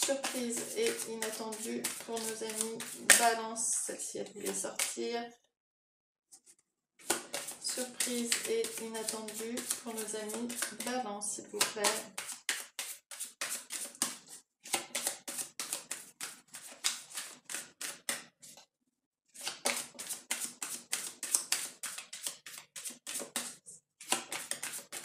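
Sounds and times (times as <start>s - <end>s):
cards being shuffled: 0.0s - 3.4s, 7.0s - 11.0s, 11.6s - 18.3s, 19.4s - 25.0s.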